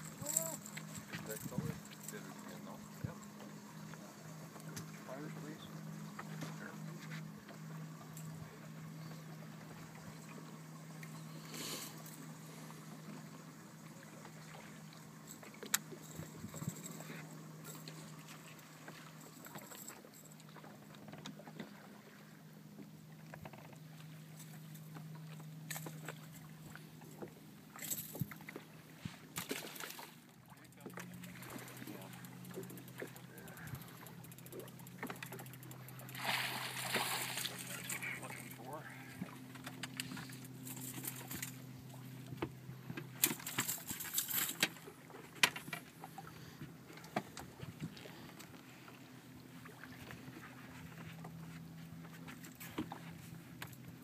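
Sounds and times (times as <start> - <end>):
boat motor humming: 0.0 - 54.0.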